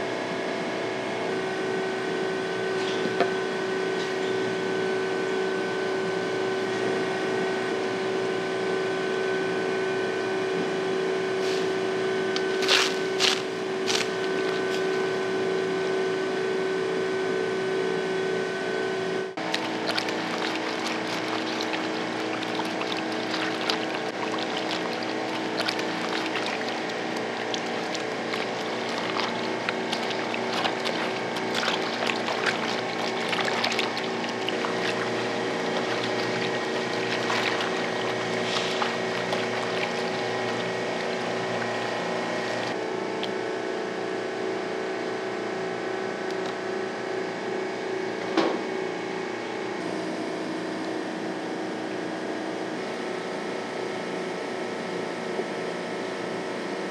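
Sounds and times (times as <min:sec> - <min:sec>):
mechanical hum: 0:00.0 - 0:56.9
water splashing and sloshing: 0:11.6 - 0:15.2, 0:19.4 - 0:43.3.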